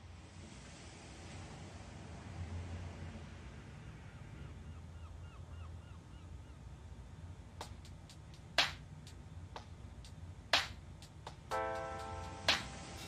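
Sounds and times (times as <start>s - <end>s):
low steady hum: 6.0s - 13.0s.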